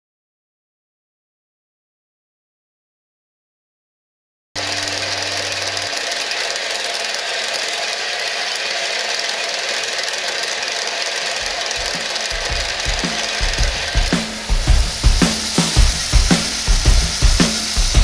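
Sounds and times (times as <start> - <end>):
bandsaw cutting steel: 4.6 - 18.0.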